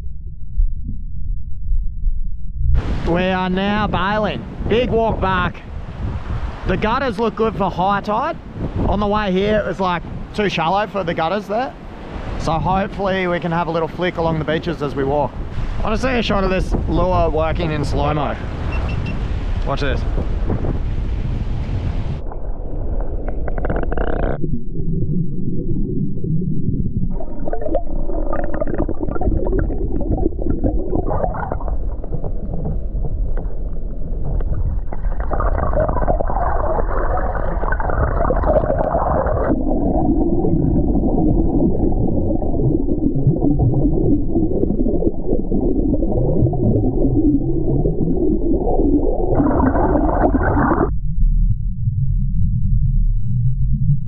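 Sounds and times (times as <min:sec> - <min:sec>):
muffled underwater rumbling: 0:00.0 - 0:54.0.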